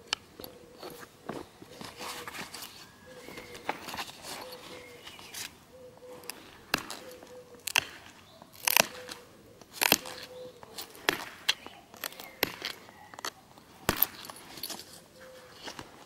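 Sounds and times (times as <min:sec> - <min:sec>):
flint knapping snaps: 0:06.2 - 0:14.8.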